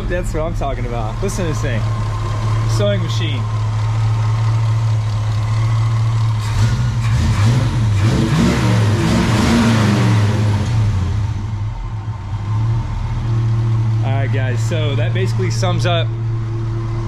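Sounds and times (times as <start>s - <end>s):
engine idling and revving: 0.0s - 17.0s.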